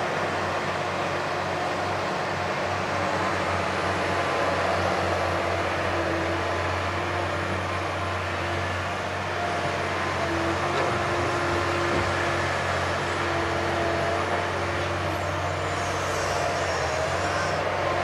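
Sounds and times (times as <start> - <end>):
diesel engines running: 0.0 - 18.0.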